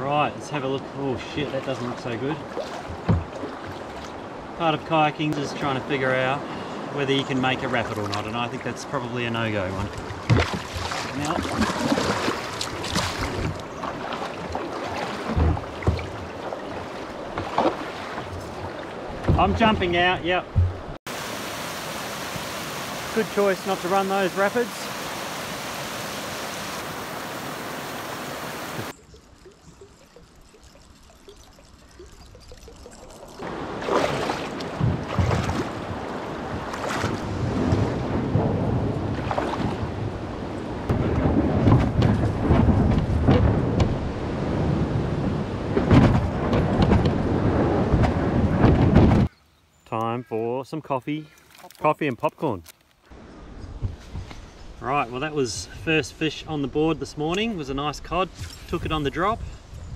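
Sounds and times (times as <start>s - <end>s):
paddle splashing: 1.4s - 4.6s, 9.6s - 44.6s
splashing from wading steps: 2.1s - 4.2s, 9.8s - 19.8s, 32.3s - 37.8s
low thumps: 19.1s - 21.0s
river water rushing over rocks: 21.1s - 28.9s.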